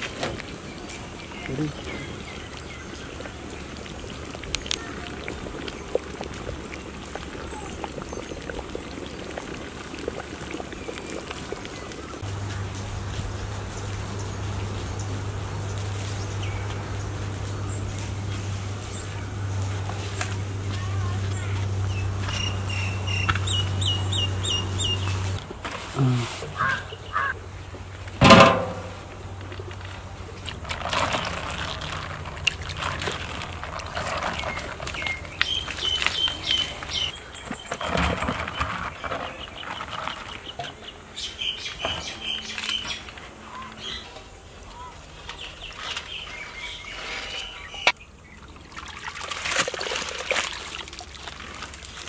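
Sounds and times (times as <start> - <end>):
birds calling with high pips: 13.6 - 19.4, 20.7 - 25.4, 26.0 - 27.4, 34.1 - 48.6
pots and ladles clattering: 28.2 - 29.2, 30.5 - 40.9.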